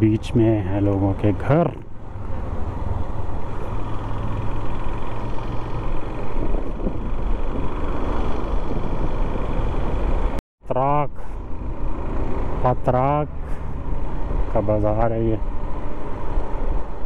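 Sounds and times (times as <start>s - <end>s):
motorcycle engine and wind noise: 0.2s - 10.4s.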